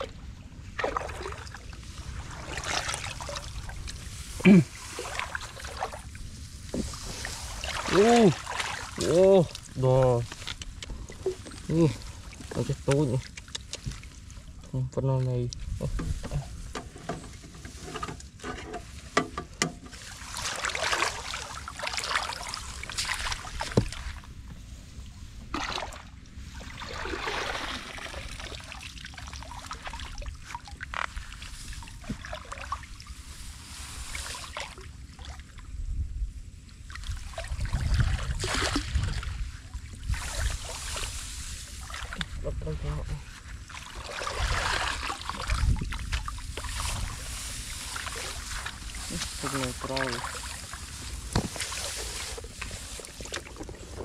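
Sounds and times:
muddy water splashing: 0:00.0 - 0:18.0, 0:19.8 - 0:35.7, 0:36.7 - 0:54.0
water trickling: 0:00.8 - 0:14.7.

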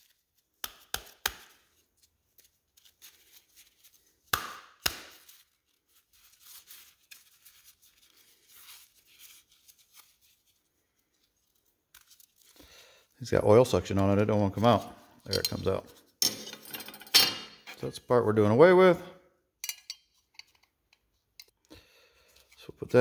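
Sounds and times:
metal parts knocking and clinking: 0:15.3 - 0:17.8.

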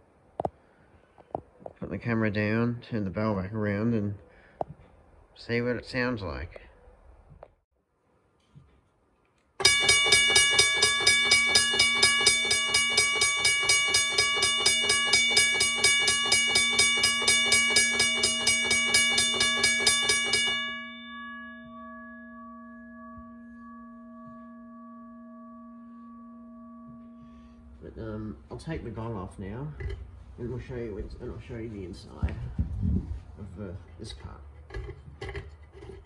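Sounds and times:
railway crossing bell ringing: 0:09.6 - 0:29.2
gong ringing tones: 0:09.6 - 0:29.4.

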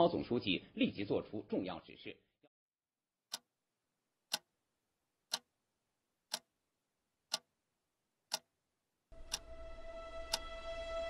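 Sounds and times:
clock ticking: 0:04.3 - 0:04.5, 0:05.3 - 0:05.5, 0:06.3 - 0:06.5, 0:07.3 - 0:07.5, 0:08.3 - 0:08.5, 0:09.2 - 0:10.5.

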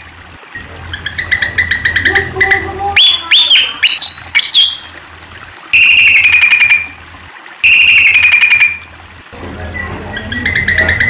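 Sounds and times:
bird chattering trills: 0:00.5 - 0:04.9, 0:05.8 - 0:07.0, 0:07.6 - 0:08.9, 0:10.1 - 0:11.0
bird squeaky swooping notes: 0:00.6 - 0:04.9, 0:05.8 - 0:06.9, 0:07.6 - 0:08.8.

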